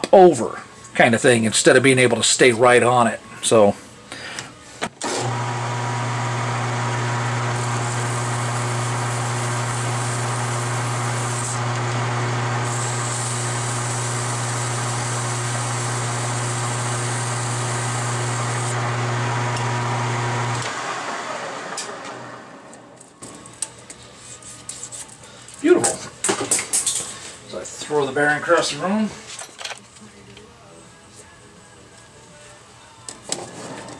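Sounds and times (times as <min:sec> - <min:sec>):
lathe motor hum: 0:05.2 - 0:22.8.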